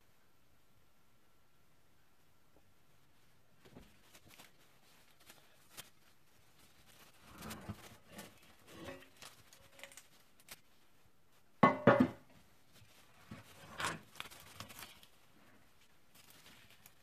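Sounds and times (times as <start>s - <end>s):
metal pan knocking on wooden board: 11.6s - 12.2s.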